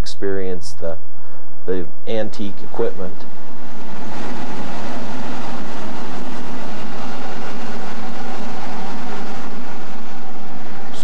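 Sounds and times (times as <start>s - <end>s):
train wheels rolling on track: 2.2s - 11.0s.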